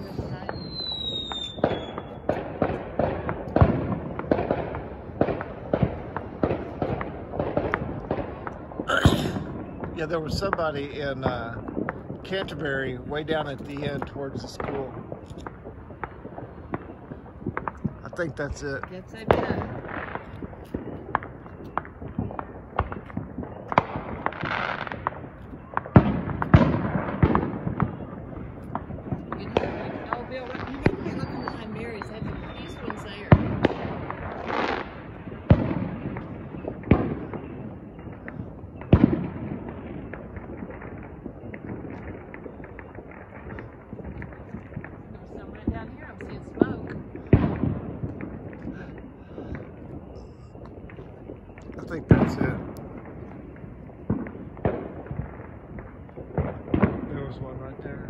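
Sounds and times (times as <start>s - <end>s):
falling firework whistle: 0.0s - 2.3s, 29.3s - 33.8s, 35.5s - 43.0s, 45.6s - 54.5s
distant fireworks and firecrackers: 0.0s - 58.0s.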